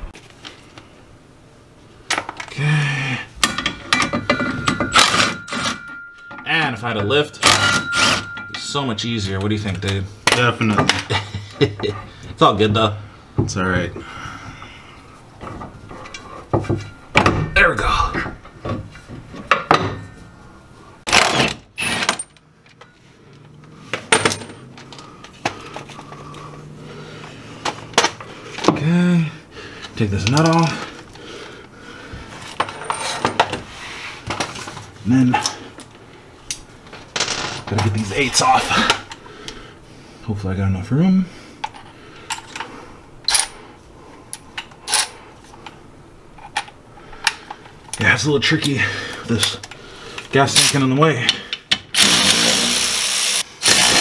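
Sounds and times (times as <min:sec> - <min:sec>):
metal tools clinking: 0:03.4 - 0:09.8, 0:24.1 - 0:26.2, 0:30.2 - 0:31.0, 0:32.4 - 0:33.6.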